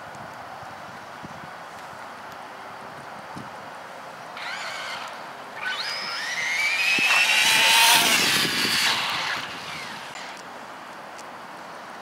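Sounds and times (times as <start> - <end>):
electric rc car motors whining: 4.4 - 10.4.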